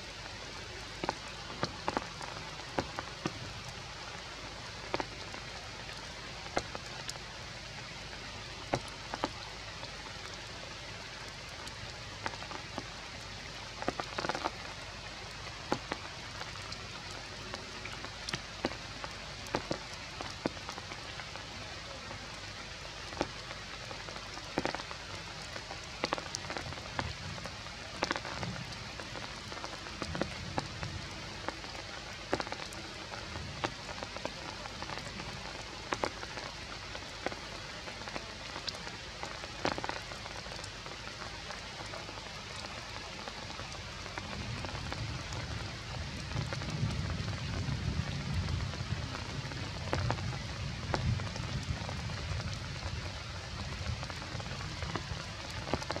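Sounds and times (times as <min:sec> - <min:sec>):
rain falling on leaves: 0:00.0 - 0:56.0.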